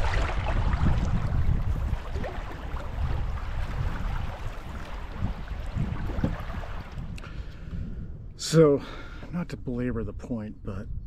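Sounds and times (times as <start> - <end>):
river water lapping against canoe: 0.0 - 7.7
wind rumble on microphone: 0.0 - 11.0.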